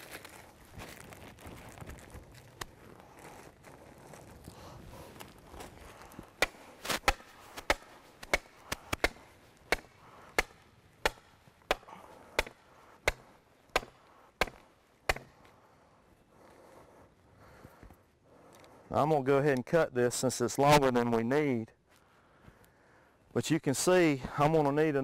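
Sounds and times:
hammer knocking wooden stake: 6.4s - 15.4s.

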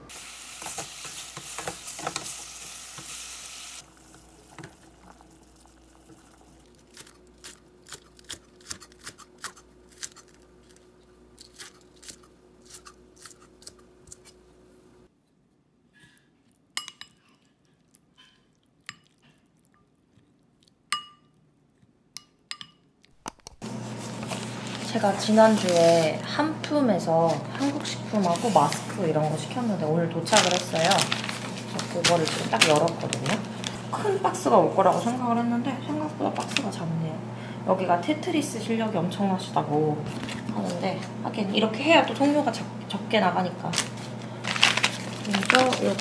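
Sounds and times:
food sizzling in a pot: 0.0s - 6.8s
spoon clinking in ceramic bowl: 20.9s - 21.3s, 22.2s - 22.8s
wooden spoon stirring: 23.7s - 26.3s, 27.0s - 33.8s, 44.1s - 46.0s.

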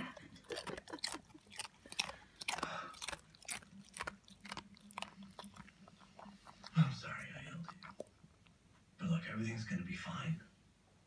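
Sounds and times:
dog chewing and smacking lips: 0.0s - 8.7s.

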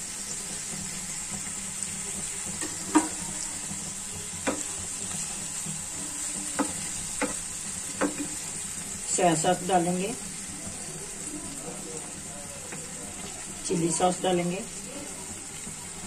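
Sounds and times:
vegetables sizzling in oil: 0.0s - 16.0s
wooden spatula knocking a pan: 2.6s - 3.2s, 4.4s - 4.8s, 6.4s - 8.5s.

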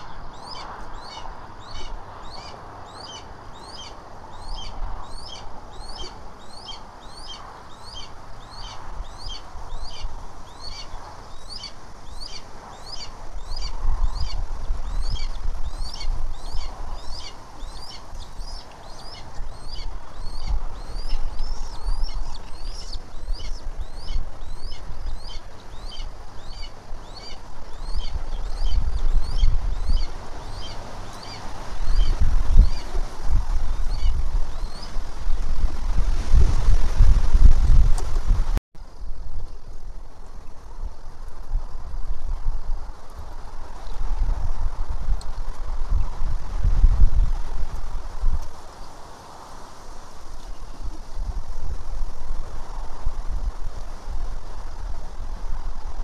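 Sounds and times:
small bird chirping: 0.0s - 32.9s
wind rumbling on microphone: 0.0s - 56.0s.

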